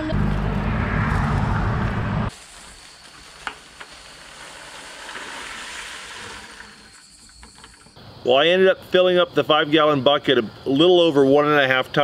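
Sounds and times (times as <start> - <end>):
loud low rumble: 0.0 - 2.3
berries pouring into colander: 2.4 - 7.0.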